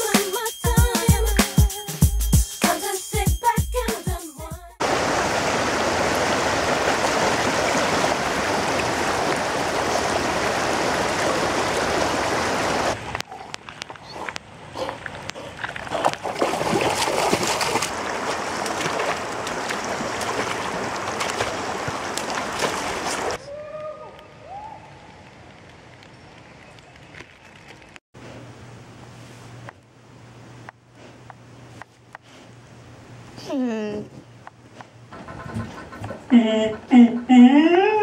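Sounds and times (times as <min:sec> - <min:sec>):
river water rushing: 0:04.8 - 0:13.0, 0:16.4 - 0:23.4
dogs splashing in water: 0:14.8 - 0:23.4.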